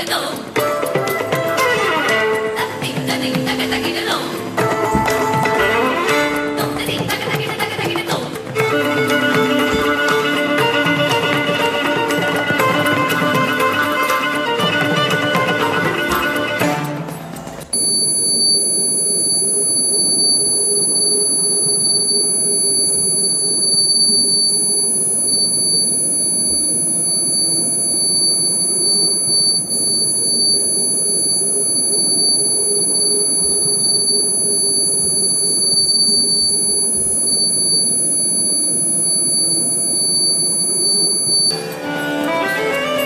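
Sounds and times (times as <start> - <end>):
high-pitched electronic ringing tone: 2.4 - 16.6, 17.7 - 42.3.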